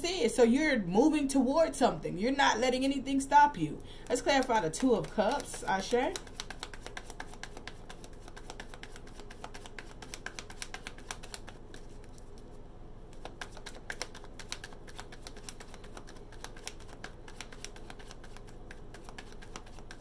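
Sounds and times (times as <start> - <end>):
cards being shuffled: 4.0 - 20.0.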